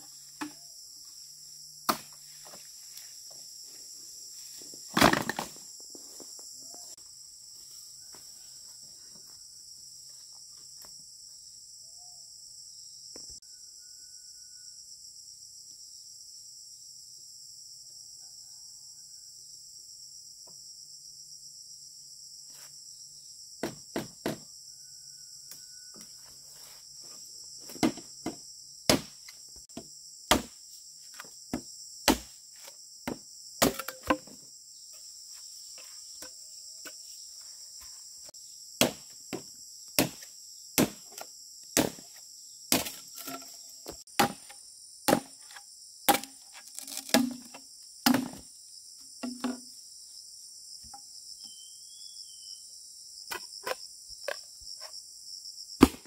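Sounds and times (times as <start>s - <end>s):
hand tool striking wood: 1.9s - 2.2s, 27.7s - 30.6s, 31.2s - 32.3s, 33.1s - 34.4s, 38.8s - 41.2s, 41.8s - 48.4s, 55.8s - 56.0s.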